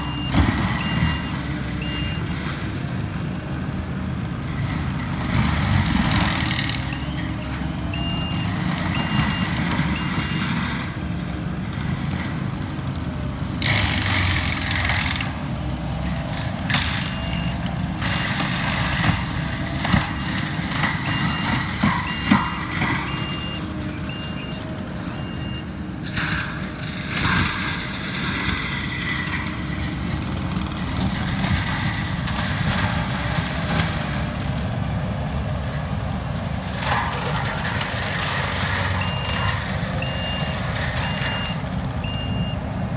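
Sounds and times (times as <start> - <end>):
reversing alarm beeping: 0.0 - 2.3, 6.8 - 10.7, 17.0 - 17.7, 20.0 - 25.7, 38.8 - 42.6
diesel engine drone: 0.0 - 42.9.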